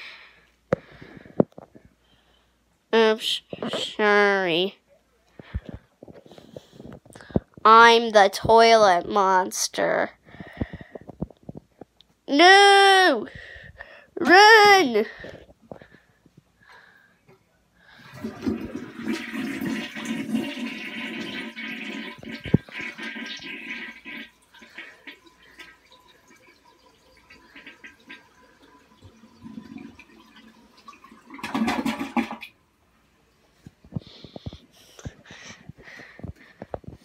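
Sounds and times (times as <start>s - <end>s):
toilet flushing: 17.9s - 32.6s
water trickling and gurgling: 18.1s - 32.4s.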